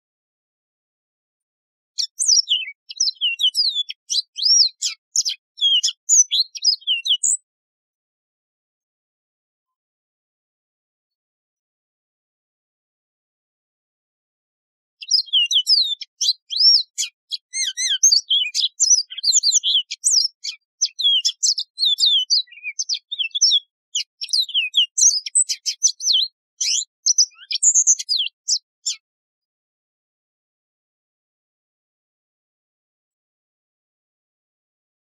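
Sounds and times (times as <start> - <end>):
canary singing trills: 2.0 - 7.5, 15.0 - 29.0.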